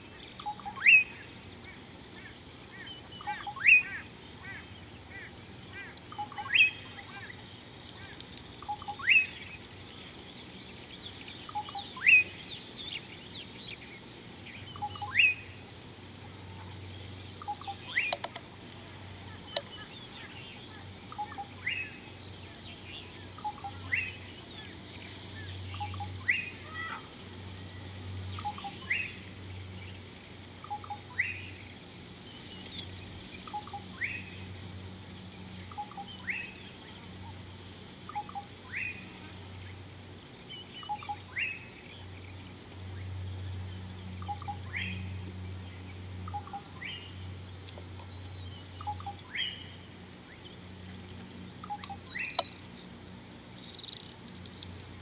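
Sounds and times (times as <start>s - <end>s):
soft bird chirps: 0.0s - 55.0s
bird call sweeping upward: 0.1s - 9.6s, 11.0s - 15.6s, 19.4s - 29.3s, 32.2s - 34.5s, 40.6s - 42.0s.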